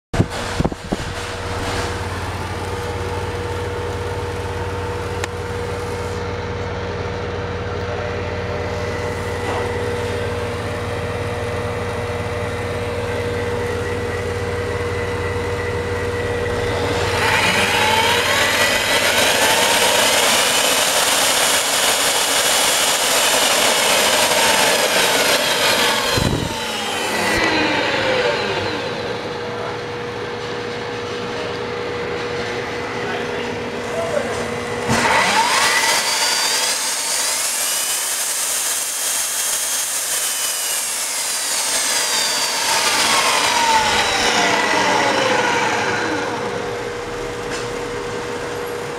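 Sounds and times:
electrical hum: 0:00.2 - 0:20.6
drill motor spinning: 0:08.8 - 0:29.5, 0:34.5 - 0:48.9.

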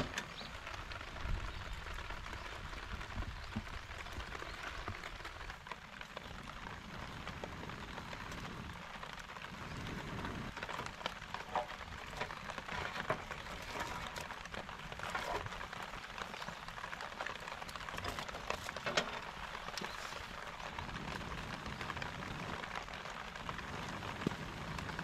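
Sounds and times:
rain falling: 0:00.0 - 0:25.0.

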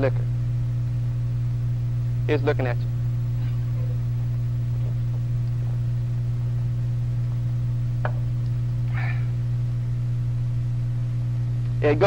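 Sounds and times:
electrical mains hum: 0:00.0 - 0:12.0.

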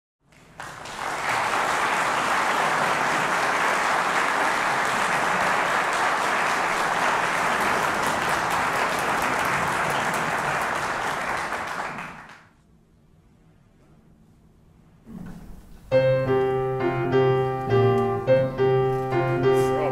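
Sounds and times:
audience applauding: 0:00.3 - 0:12.6.

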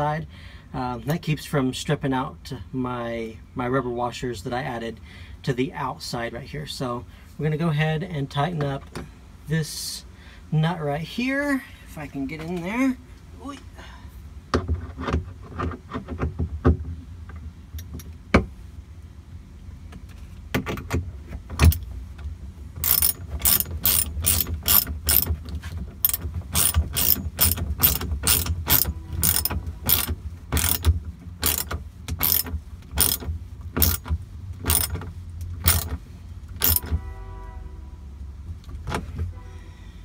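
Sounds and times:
socket ratchet clicking: 0:21.6 - 0:21.9, 0:22.8 - 0:25.4, 0:26.0 - 0:37.0.

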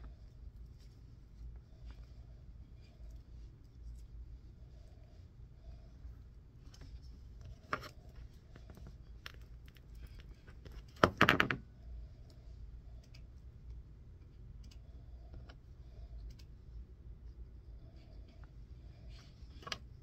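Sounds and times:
fingers handling cable wires: 0:06.6 - 0:11.7.

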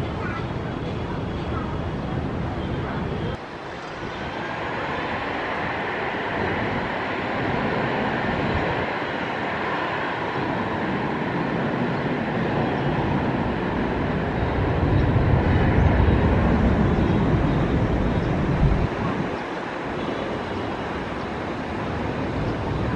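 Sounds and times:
jet engine noise: 0:00.0 - 0:22.9
deep rumble: 0:14.4 - 0:19.3.

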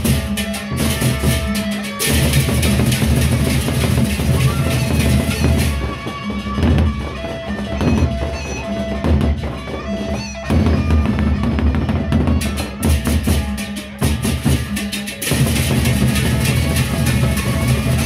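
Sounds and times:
clashing cymbals: 0:00.0 - 0:06.5, 0:12.4 - 0:18.0
barrel drums beaten: 0:00.0 - 0:18.0.

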